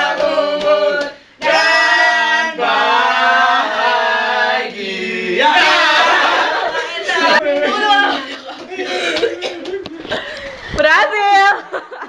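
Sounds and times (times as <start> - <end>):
group singing without accompaniment: 0.0 - 9.8.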